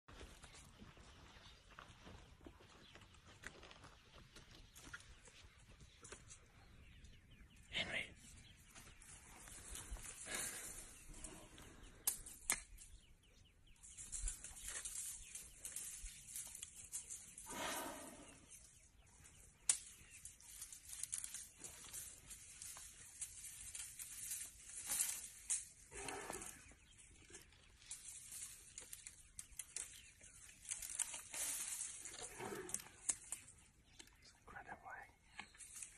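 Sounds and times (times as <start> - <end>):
twigs snapping: 11.9 - 13.0, 19.6 - 26.5, 27.3 - 34.1
leafy branches rustling and tearing: 13.9 - 17.6, 19.6 - 33.5.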